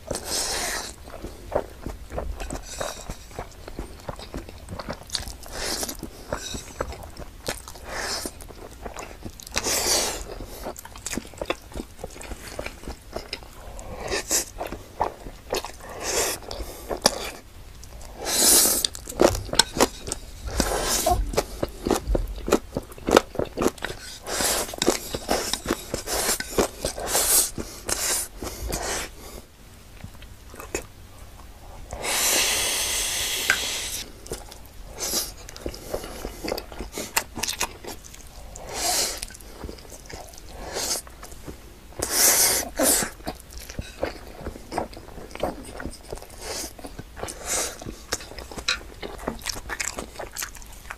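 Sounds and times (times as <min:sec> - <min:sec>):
noodles slurped: 0:00.0 - 0:01.7
wet chewing and smacking: 0:00.0 - 0:29.2, 0:33.4 - 0:50.9.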